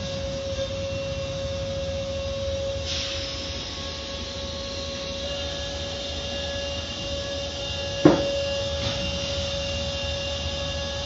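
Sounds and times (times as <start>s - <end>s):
car wash machinery humming: 0.0s - 11.0s
constant machine whine: 0.0s - 11.0s
short knock: 8.0s - 8.4s.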